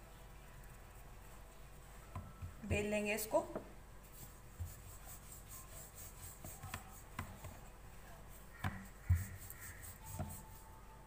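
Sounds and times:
rolling pin rubbing on dough: 4.1 - 10.8.

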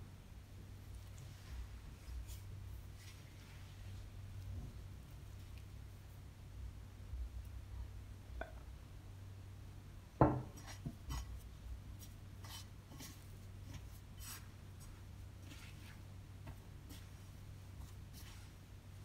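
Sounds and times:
hand kneading dough in bowl: 0.8 - 6.3, 10.4 - 19.0.

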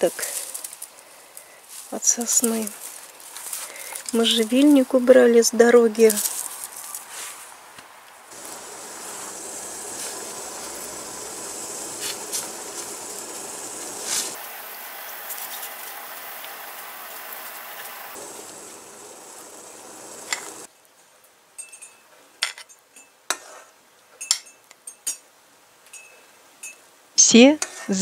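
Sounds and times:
steady hiss: 0.0 - 20.7
dishes and cutlery clinking: 21.6 - 23.6, 24.2 - 25.2.

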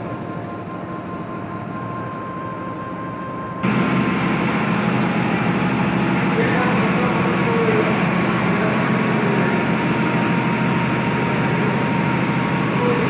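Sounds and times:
grain cleaning machine humming: 3.6 - 13.0.

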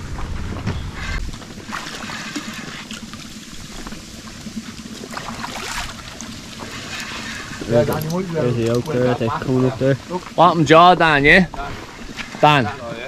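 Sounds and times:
river water splashing: 1.3 - 13.0
small irregular splashes: 1.4 - 8.3.

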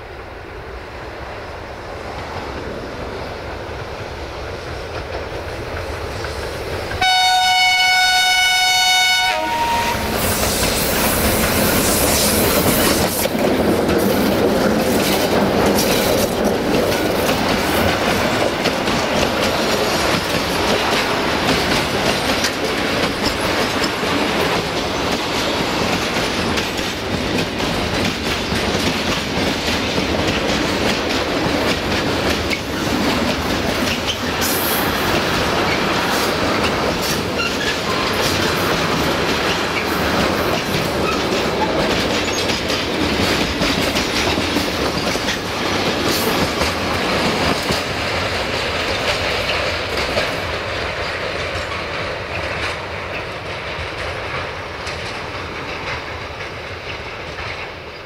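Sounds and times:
freight train rumbling past: 0.0 - 58.0
locomotive horn: 7.0 - 10.2.

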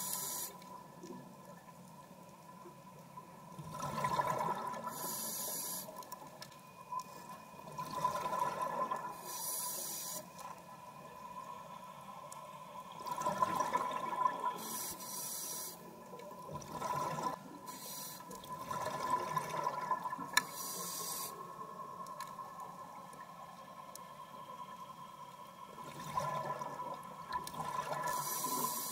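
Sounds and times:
regulator inhalation hiss: 0.0 - 0.6, 4.9 - 6.0, 9.2 - 10.3, 14.6 - 15.9, 17.7 - 18.3, 20.4 - 21.5, 28.1 - 28.9.

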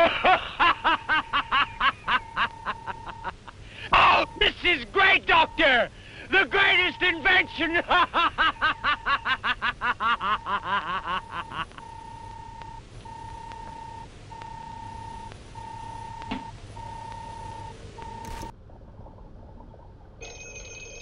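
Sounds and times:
man laughing loudly: 0.0 - 3.6, 7.7 - 11.9
electronic tone beeping: 12.0 - 18.5.

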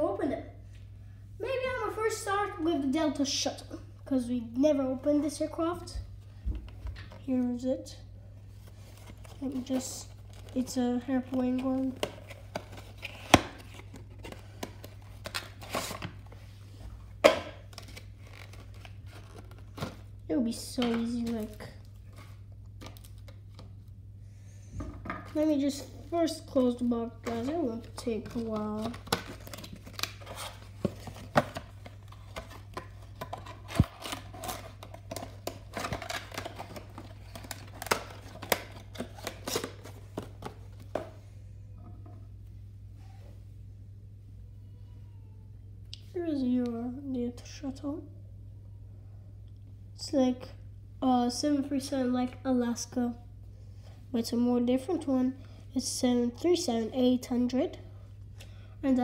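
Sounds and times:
plastic and cardboard crinkling: 8.6 - 16.4, 17.2 - 20.1, 25.7 - 41.1.

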